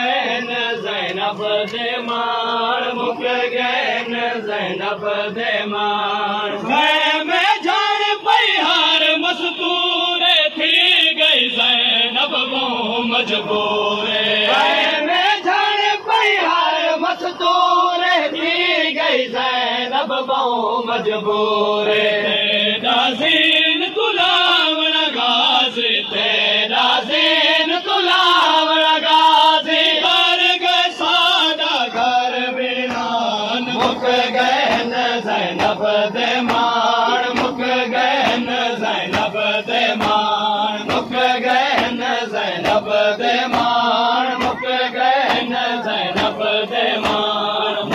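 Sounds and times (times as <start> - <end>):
men chanting a lament: 0.0 - 47.9
rhythmic chest beating slaps: 21.9 - 47.9.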